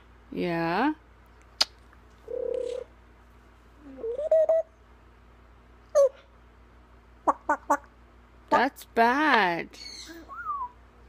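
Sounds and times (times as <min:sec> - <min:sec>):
parrot vocal sounds: 0:07.2 - 0:07.9, 0:09.8 - 0:10.6.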